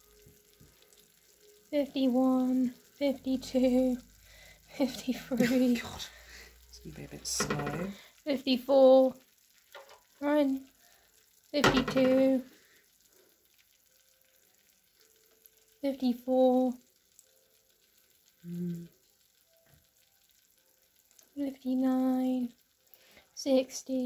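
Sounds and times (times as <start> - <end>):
food sizzling: 0.0 - 24.0
person's voice: 1.7 - 4.0, 4.7 - 9.2, 10.2 - 10.6, 11.6 - 12.4, 15.8 - 16.8, 21.4 - 22.5.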